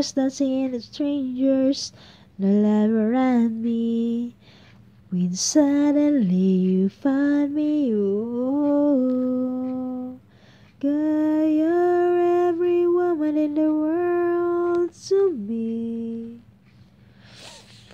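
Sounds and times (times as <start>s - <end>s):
woman singing unaccompanied: 0.0s - 4.4s, 5.1s - 16.5s
singer breathing: 10.3s - 10.8s, 16.8s - 17.9s.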